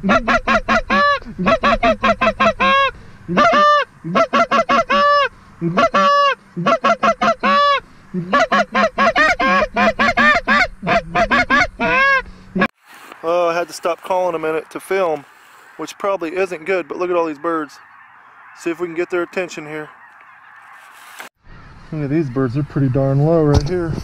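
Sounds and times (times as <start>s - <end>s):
goose call clucks and honks: 0.0s - 12.7s, 15.7s - 21.0s.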